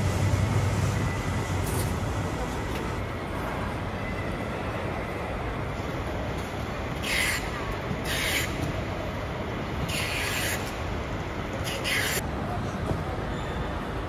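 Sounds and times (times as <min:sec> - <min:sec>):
busy airport terminal noise: 0:00.0 - 0:14.0.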